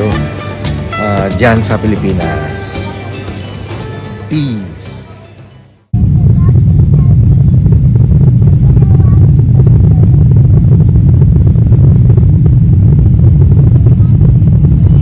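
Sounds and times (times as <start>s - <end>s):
jet engines roaring in cabin: 6.0s - 15.0s.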